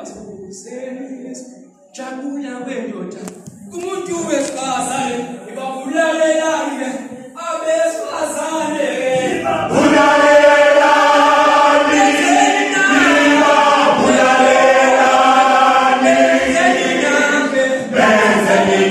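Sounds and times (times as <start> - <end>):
male choir singing a cappella: 6.0 - 18.9.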